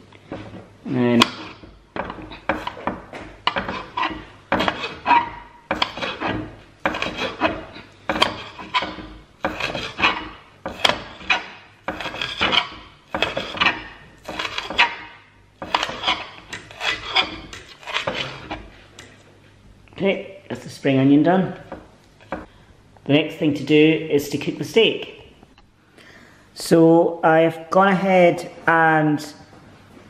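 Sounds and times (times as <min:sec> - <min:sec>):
knife slicing on chopping board: 0:03.5 - 0:15.0, 0:15.6 - 0:18.7.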